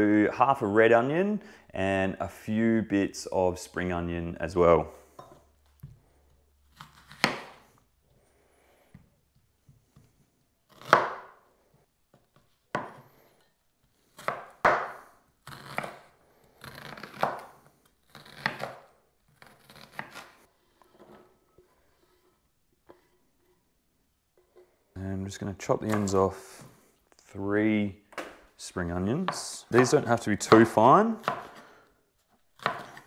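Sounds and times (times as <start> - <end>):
knife chopping on wooden board: 6.8 - 7.6, 10.7 - 11.4, 12.7 - 13.1, 14.2 - 16.1, 16.8 - 17.5, 18.2 - 20.3, 29.2 - 31.6, 32.6 - 33.0.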